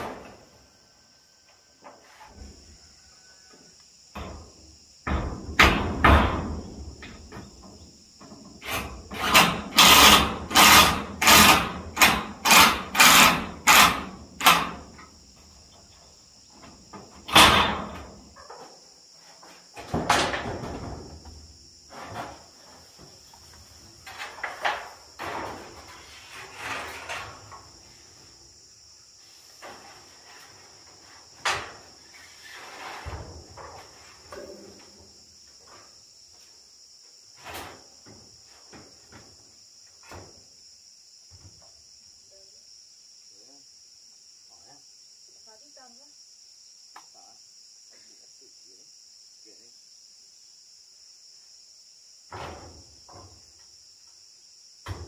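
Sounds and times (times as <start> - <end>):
insects trilling: 0.0 - 55.0
knocks on metal roofing: 4.2 - 7.6, 16.9 - 18.2.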